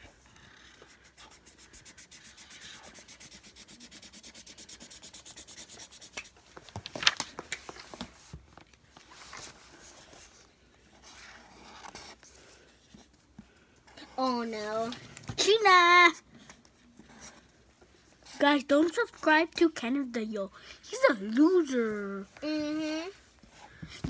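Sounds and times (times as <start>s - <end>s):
marker scribbling on paper: 0.0s - 6.4s.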